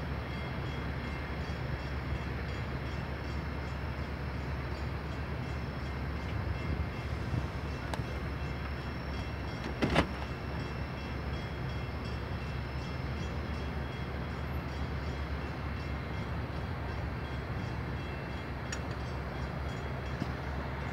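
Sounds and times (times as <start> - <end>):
idling traffic rumble: 5.3 - 20.9.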